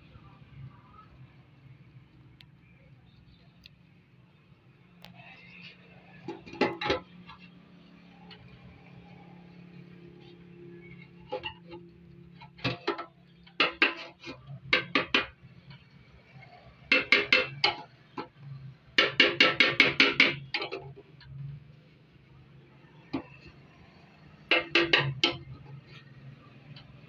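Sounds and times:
hammer tapping on metal tank: 12.6s - 15.4s, 16.9s - 17.8s, 19.0s - 20.8s, 24.5s - 25.5s.

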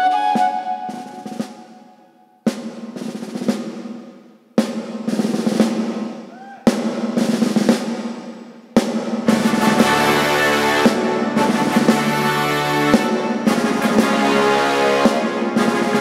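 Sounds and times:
snare and tom strokes: 0.1s - 16.0s
crash cymbal and drum hits: 8.8s - 14.4s
band holding low note: 9.3s - 15.2s.

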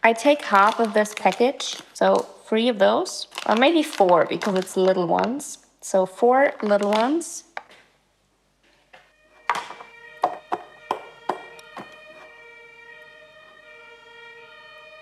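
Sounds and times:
background music struck notes: 9.1s - 12.5s.

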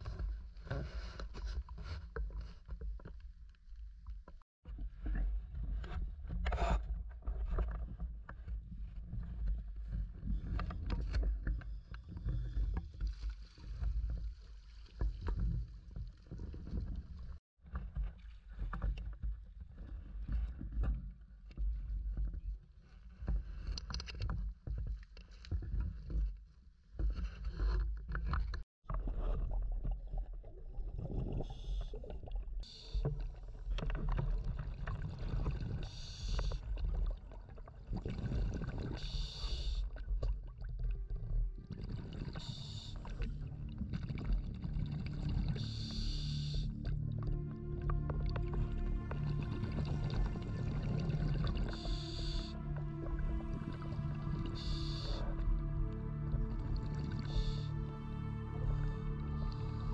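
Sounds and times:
water sloshing and splashing: 7.2s - 22.3s, 28.0s - 59.9s.

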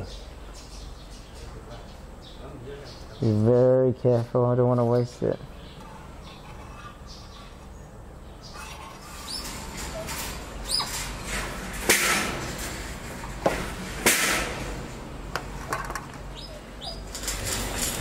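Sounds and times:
wire cages rasping: 5.6s - 18.0s
bird chirps: 16.3s - 17.1s.

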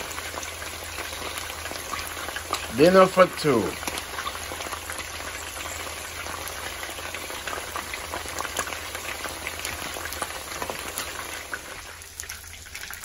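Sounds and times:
chicken frying in pan: 0.0s - 13.0s.

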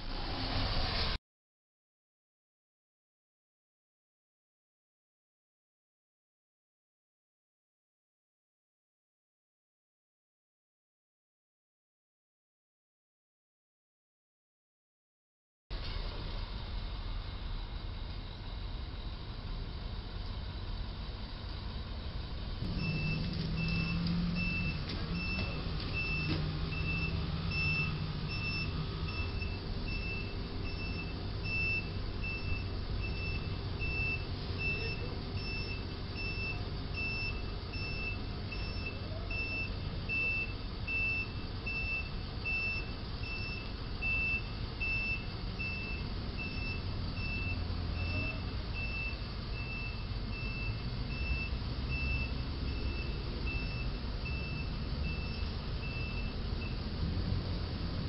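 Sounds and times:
low engine rumble: 15.7s - 58.0s
truck reversing alarm beeping: 15.9s - 57.1s.

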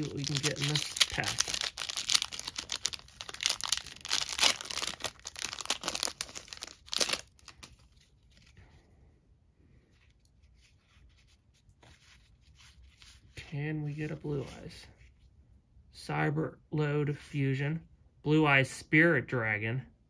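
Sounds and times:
foil wrapper tearing and crinkling: 0.0s - 7.9s
faint rustle of cards: 0.0s - 15.5s.

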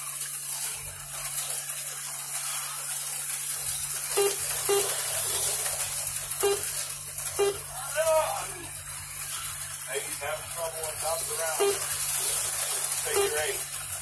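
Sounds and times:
short pitched blips: 4.2s - 5.0s, 6.4s - 6.7s, 7.4s - 7.8s, 11.6s - 11.9s.

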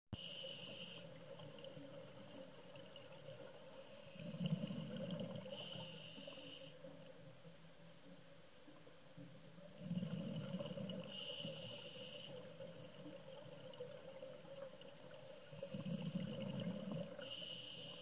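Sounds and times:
hissing regulator inhale: 0.2s - 1.2s, 3.7s - 6.9s, 11.0s - 12.7s, 15.2s - 18.0s
gurgle of exhaled bubbles: 4.2s - 5.6s, 9.8s - 11.2s, 12.8s - 17.2s.

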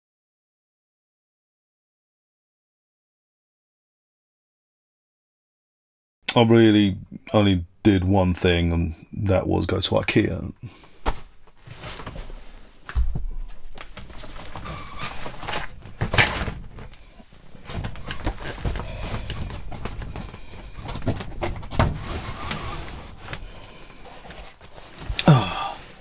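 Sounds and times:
clothing rustling against microphone: 10.7s - 25.2s.

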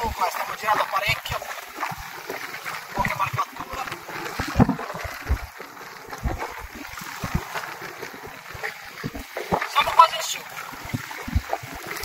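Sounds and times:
waves lapping against boat hull: 0.0s - 12.0s
wind buffeting microphone: 2.8s - 12.0s.

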